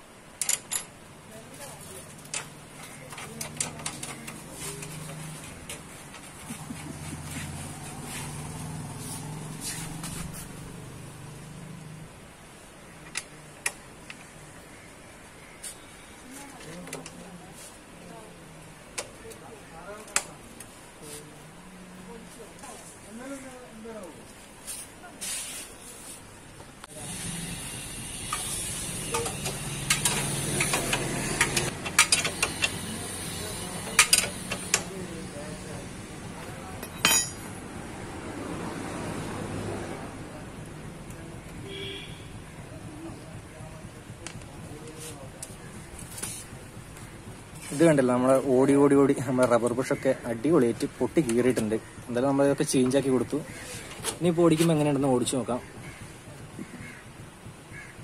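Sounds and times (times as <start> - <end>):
spanner clicking on metal nut: 28.2 - 32.9, 33.8 - 34.9.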